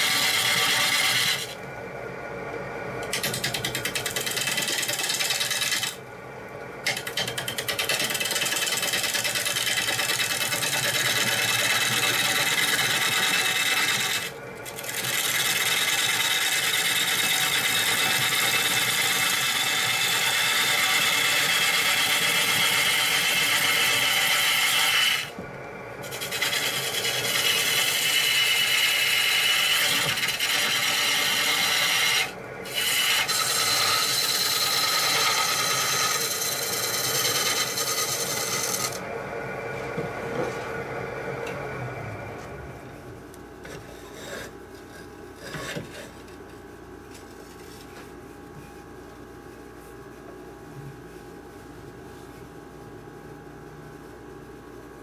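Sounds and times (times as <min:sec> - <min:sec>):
gouge cutting wood on lathe: 0:00.0 - 0:01.6, 0:03.0 - 0:06.0, 0:06.9 - 0:25.3, 0:26.0 - 0:39.1
lathe hum: 0:00.0 - 0:06.2, 0:06.8 - 0:46.3.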